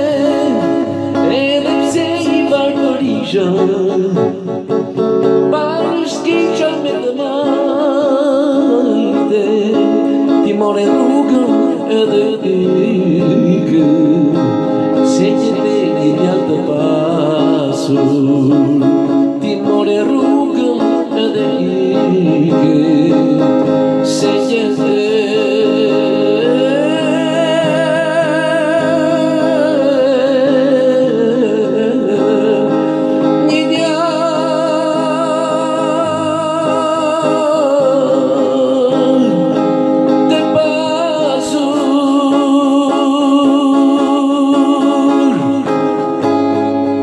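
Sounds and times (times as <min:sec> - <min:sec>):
electric guitar: 0:00.0 - 0:47.0
man singing: 0:00.0 - 0:47.0.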